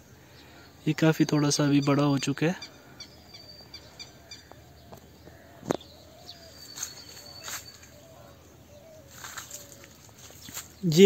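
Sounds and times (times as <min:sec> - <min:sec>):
birds calling: 0:00.0 - 0:11.0
soft rustles: 0:05.0 - 0:08.0, 0:09.0 - 0:10.8.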